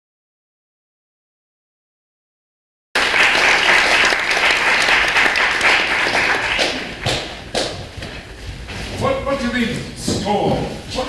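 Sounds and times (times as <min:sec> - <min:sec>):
audience applauding: 0:03.0 - 0:07.8.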